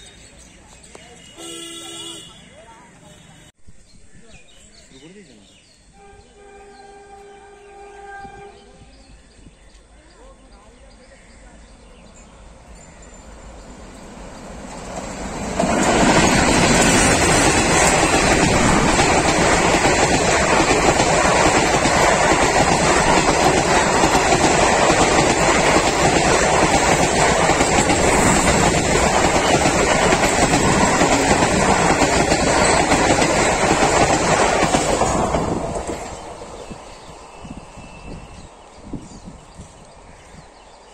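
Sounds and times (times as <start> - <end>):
diesel locomotives passing: 11.4 - 40.9
coach wheels clattering over rails: 13.4 - 37.0.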